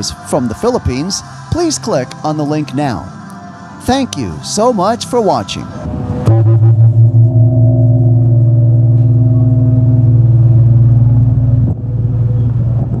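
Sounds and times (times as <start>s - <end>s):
gong ringing: 6.2s - 13.0s.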